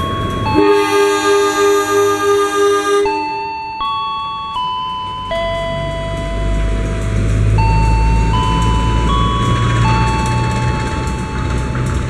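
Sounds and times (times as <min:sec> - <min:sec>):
station chime melody: 0:00.0 - 0:06.9, 0:07.6 - 0:11.7
diesel locomotive engine rumble: 0:00.0 - 0:12.0.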